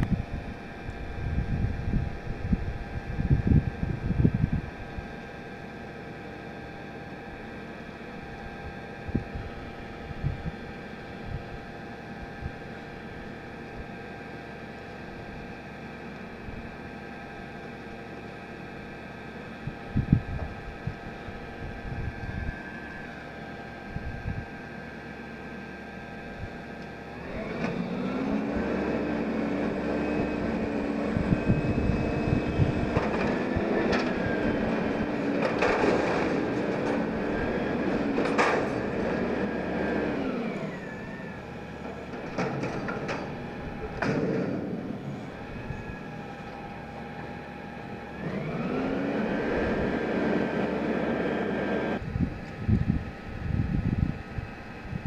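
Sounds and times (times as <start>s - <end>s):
garbage truck engine: 0.0s - 55.0s
dumpster clanks and bangs: 32.8s - 39.6s, 41.8s - 45.0s.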